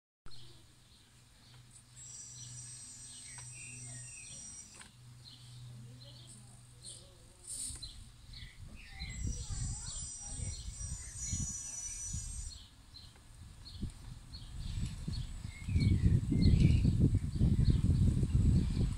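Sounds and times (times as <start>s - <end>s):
small birds chirping: 0.3s - 18.9s
electric motor hum and whine: 1.2s - 12.7s.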